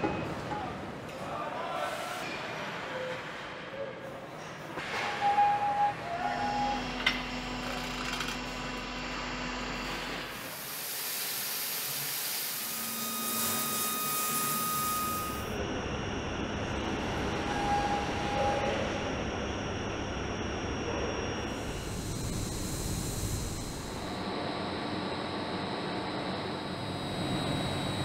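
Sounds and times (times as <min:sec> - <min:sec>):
dull machine noise: 0:12.6 - 0:28.0
low machine hum: 0:12.6 - 0:28.0.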